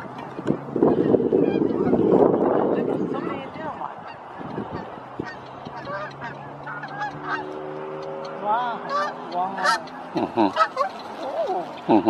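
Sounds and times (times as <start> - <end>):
geese honking in flight: 0.9 - 2.4, 3.0 - 12.0.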